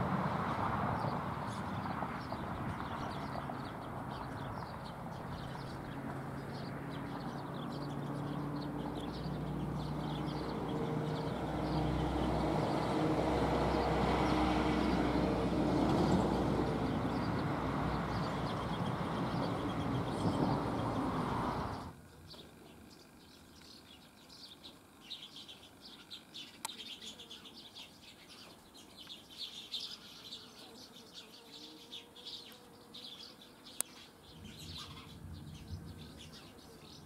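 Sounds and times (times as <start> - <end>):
engine humming: 0.0 - 22.5
birds chirping: 0.0 - 37.0.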